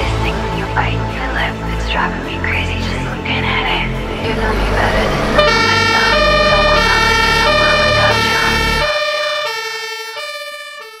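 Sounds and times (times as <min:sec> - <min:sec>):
background music: 0:00.0 - 0:11.0
fire engine two-tone siren: 0:05.2 - 0:11.0.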